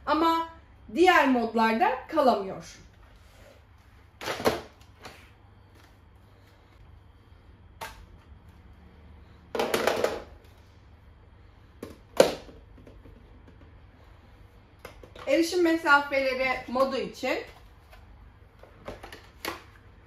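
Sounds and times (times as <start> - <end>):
plastic vacuum parts clattering: 9.5 - 10.6, 18.6 - 19.8.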